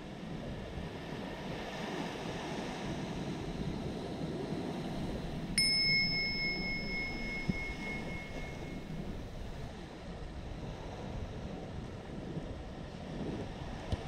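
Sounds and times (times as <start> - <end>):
surf and wind: 0.0 - 14.0
bell ringing: 5.0 - 9.6.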